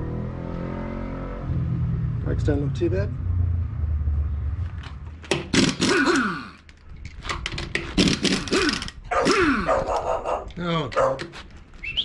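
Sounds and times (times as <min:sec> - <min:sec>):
pneumatic impact wrench rattling: 0:05.3 - 0:09.6.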